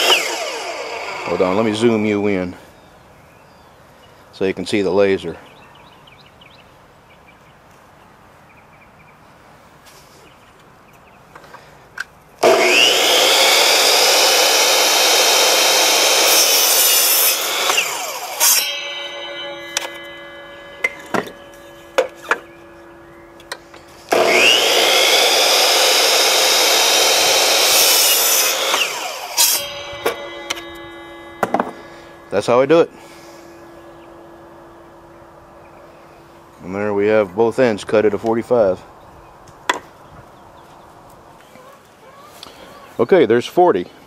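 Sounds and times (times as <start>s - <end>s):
miter saw cutting wood: 0.0s - 2.5s, 12.4s - 37.6s
wood knocking: 28.7s - 31.9s.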